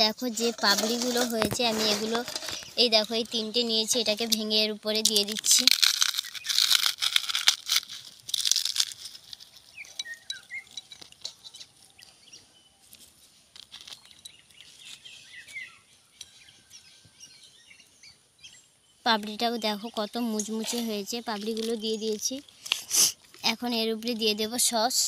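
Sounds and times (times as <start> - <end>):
crackers crunching: 0.4 - 12.0, 12.8 - 15.6.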